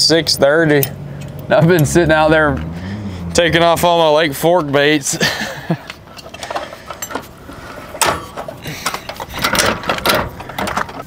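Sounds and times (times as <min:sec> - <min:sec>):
fishing tackle clattering: 0:08.0 - 0:11.0.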